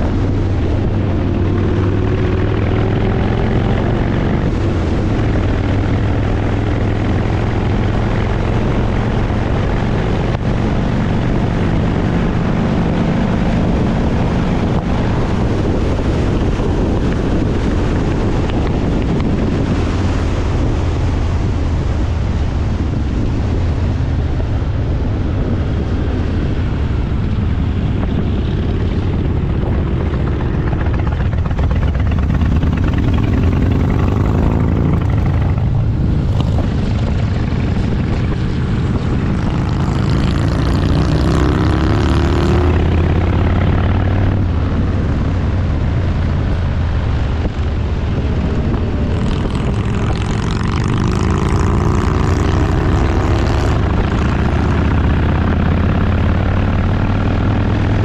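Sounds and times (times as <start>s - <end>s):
motorcycle engine running: 0.0s - 58.0s
wind rushing over microphone: 0.0s - 58.0s.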